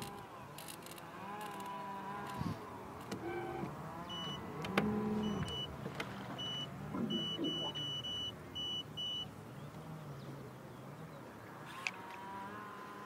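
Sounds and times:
high electronic beeps: 0:06.4 - 0:09.3.

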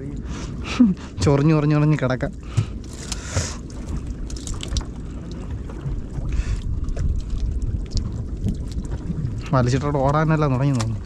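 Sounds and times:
wind and sea rumble: 0:00.0 - 0:11.0
wet fishing net rustling: 0:02.6 - 0:09.2.

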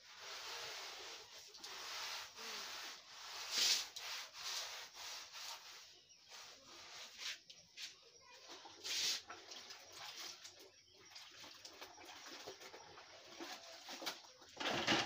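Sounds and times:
cloth rubbing on concrete: 0:00.0 - 0:08.1.

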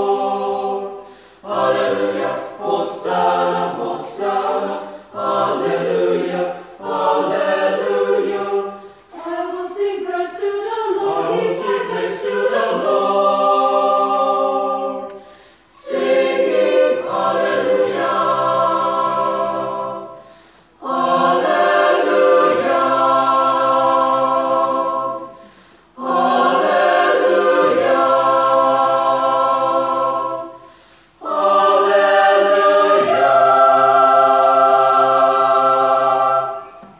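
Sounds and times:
choir singing unaccompanied: 0:00.0 - 0:36.9
singers breathing: 0:01.0 - 0:01.5, 0:08.8 - 0:09.1, 0:15.2 - 0:15.8, 0:20.1 - 0:20.8, 0:25.4 - 0:26.0, 0:30.6 - 0:31.2.

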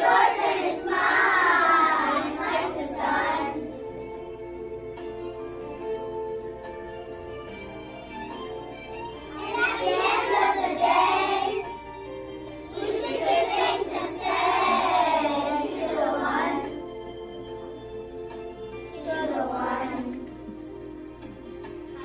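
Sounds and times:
children singing together: 0:00.0 - 0:04.2, 0:09.3 - 0:17.1, 0:18.8 - 0:20.7
instrumental music: 0:00.0 - 0:22.0.

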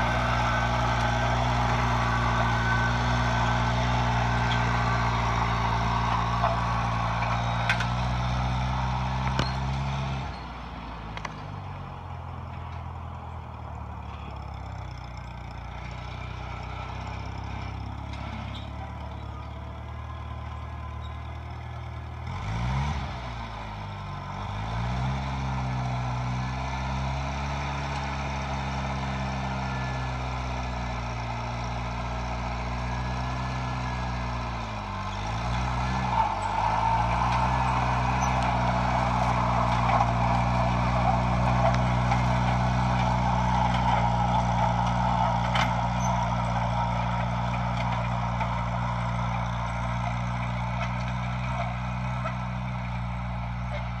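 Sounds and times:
tractor engine running: 0:00.0 - 0:54.0.

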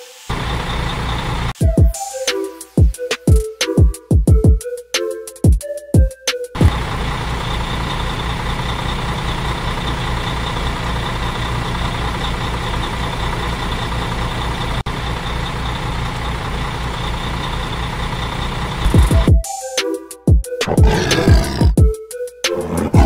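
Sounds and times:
truck engine idling: 0:00.3 - 0:01.6, 0:06.6 - 0:18.9.

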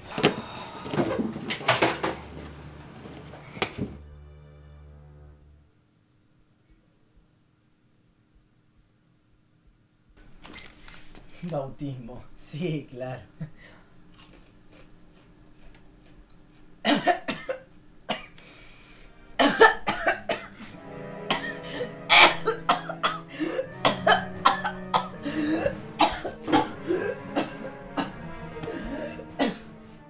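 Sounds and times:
sustained music: 0:02.3 - 0:05.8, 0:19.1 - 0:30.0
man coughing and gagging: 0:16.8 - 0:18.3, 0:19.4 - 0:29.8.

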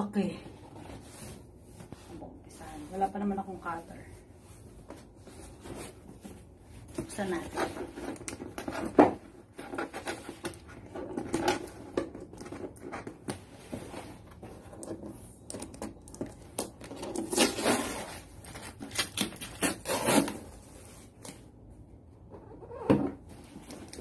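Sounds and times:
tape peeling off cardboard: 0:16.6 - 0:20.5.

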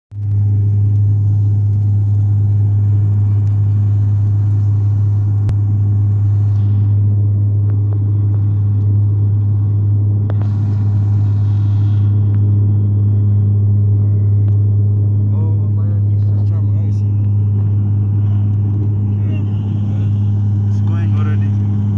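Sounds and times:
propeller engines droning: 0:00.1 - 0:21.9
airflow hiss: 0:10.4 - 0:12.2.

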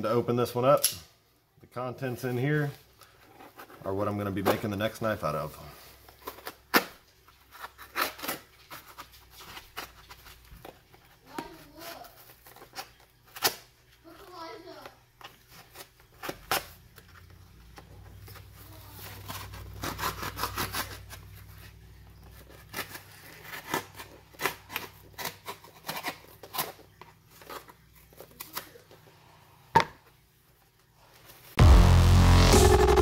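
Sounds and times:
cardboard rustling and crinkling: 0:02.6 - 0:05.2, 0:05.9 - 0:29.0
knife cutting tape and cardboard: 0:06.2 - 0:10.4, 0:15.5 - 0:16.8, 0:18.2 - 0:21.7, 0:22.4 - 0:28.8
electronic music: 0:31.6 - 0:33.0.

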